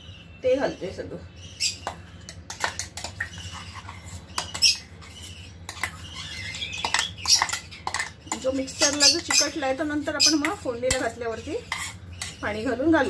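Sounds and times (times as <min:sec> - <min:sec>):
spoon scraping and clinking on metal: 0:02.3 - 0:09.6, 0:10.9 - 0:12.5.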